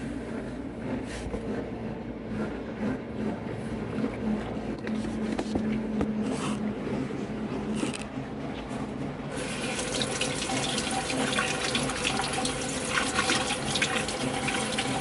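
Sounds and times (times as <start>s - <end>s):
tap water running: 9.4s - 15.0s
water splashing into metal sink: 9.4s - 15.0s.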